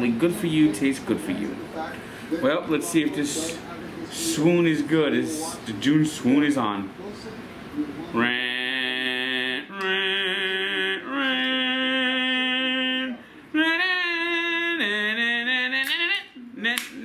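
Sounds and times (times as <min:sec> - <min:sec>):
man singing long held notes: 0:08.2 - 0:17.0.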